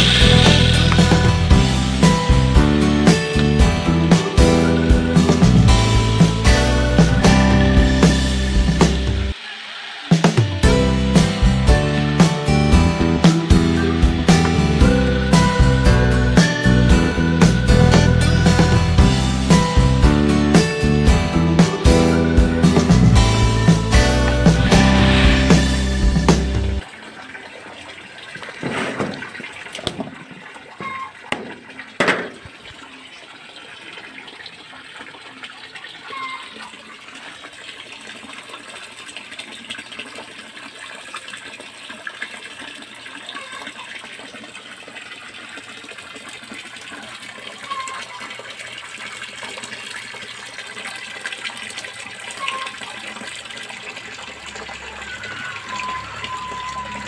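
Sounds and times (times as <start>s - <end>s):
water splashing into fish tank: 26.8s - 57.0s
sharp knocks: 31.3s - 32.4s.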